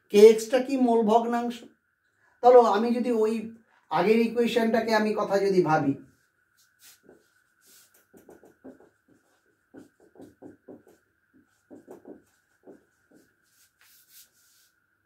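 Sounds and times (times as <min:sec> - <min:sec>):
marker writing on whiteboard: 0:06.6 - 0:14.8.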